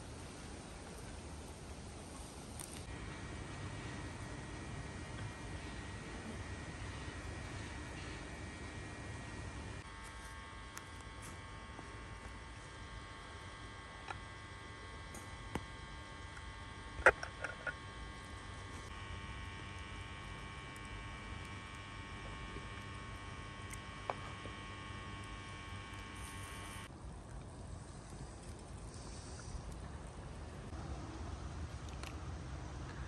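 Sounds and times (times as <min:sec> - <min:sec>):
high even tones humming: 0:02.8 - 0:26.9.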